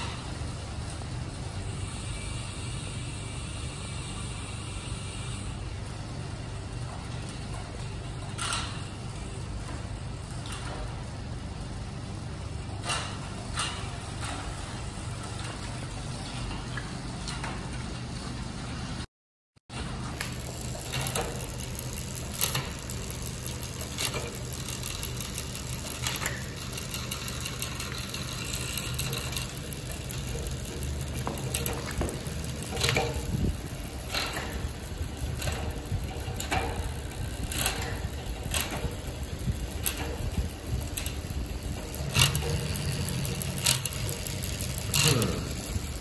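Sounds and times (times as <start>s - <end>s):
bike chain whirring: 0.0s - 17.8s, 19.7s - 46.0s
sharp drivetrain clicks: 19.9s - 46.0s.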